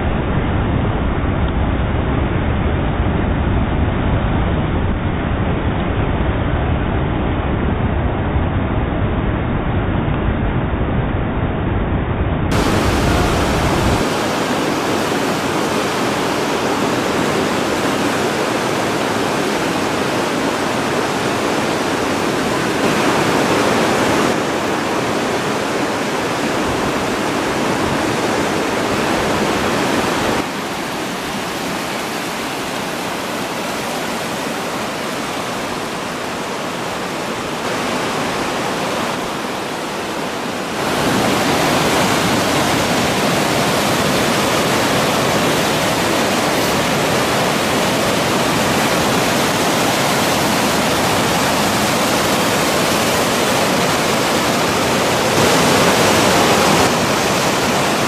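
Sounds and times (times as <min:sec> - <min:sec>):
rushing whitewater: 0:12.5 - 0:58.0.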